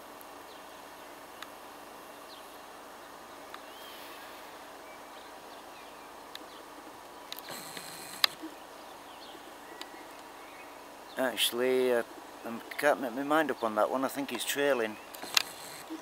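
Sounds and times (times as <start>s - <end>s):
steady hiss: 0.0s - 16.0s
faint bird chirps: 2.1s - 11.4s
sharp clicks: 7.3s - 8.4s, 15.1s - 16.0s.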